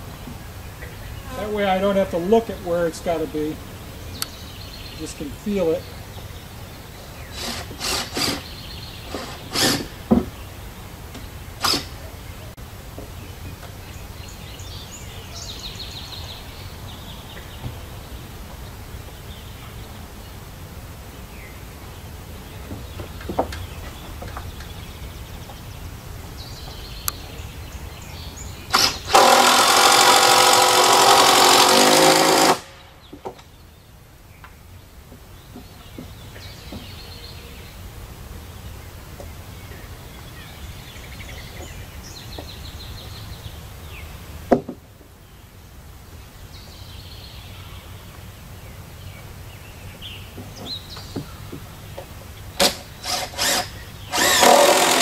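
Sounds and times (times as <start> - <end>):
power drill driving screw: 7.4 - 8.4, 9.1 - 9.9, 11.6 - 12.0, 28.7 - 32.8, 52.6 - 55.0.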